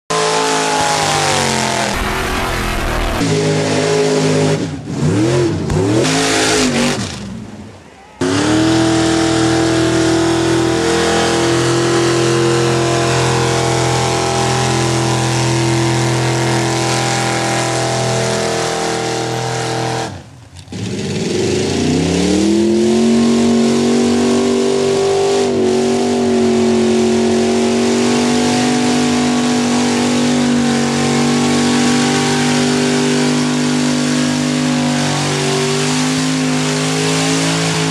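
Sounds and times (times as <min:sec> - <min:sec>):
truck engines revving: 0:00.1 - 0:37.9.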